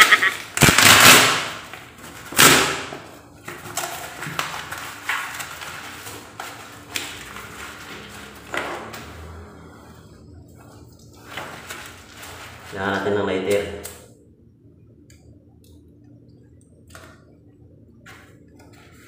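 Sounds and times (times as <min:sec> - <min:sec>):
cardboard tearing: 0:00.2 - 0:02.9.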